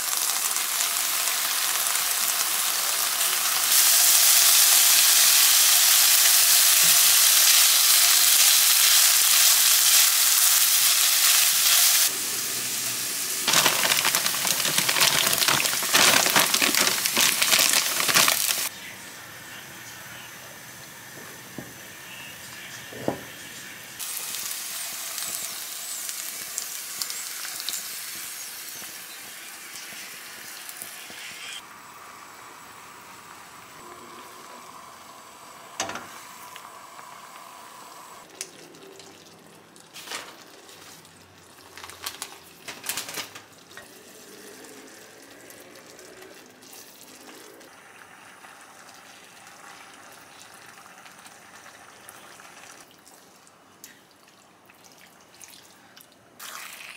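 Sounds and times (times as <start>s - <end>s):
chicken sizzling in a frying pan: 0.0s - 18.7s, 24.0s - 33.8s, 47.3s - 52.8s.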